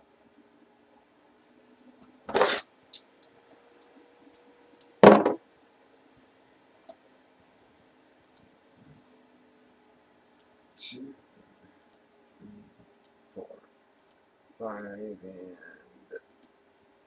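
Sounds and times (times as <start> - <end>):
dice knocking on box: 5.0 - 5.4.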